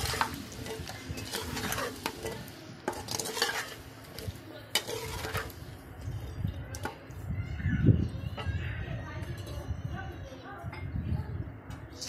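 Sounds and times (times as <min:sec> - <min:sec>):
meat sizzling in oil: 0:00.0 - 0:05.7
metal spoon scraping pan: 0:00.0 - 0:07.0.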